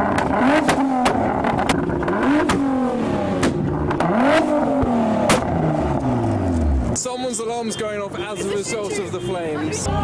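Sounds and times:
exhaust pops and cracks: 0.0s - 7.0s
car engine revving: 0.0s - 7.1s.

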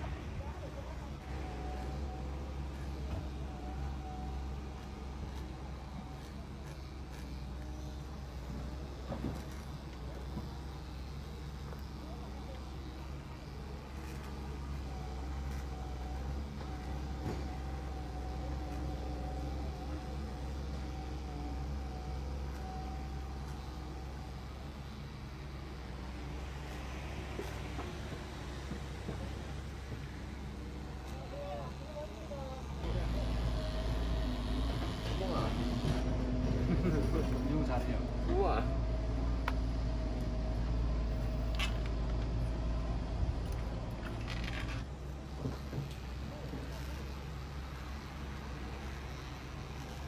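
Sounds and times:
electric clippers buzzing: 32.8s - 36.2s.

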